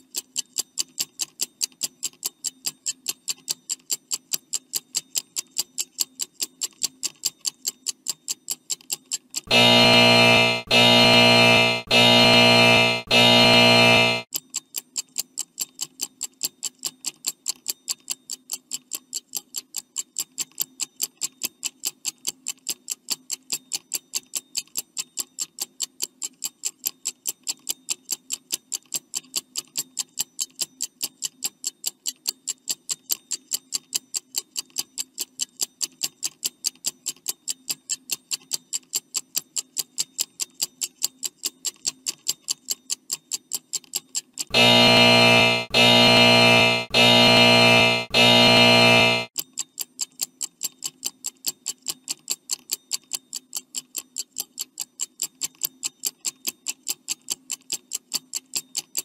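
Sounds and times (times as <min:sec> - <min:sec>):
faint low hum: 0:44.5 - 0:49.3.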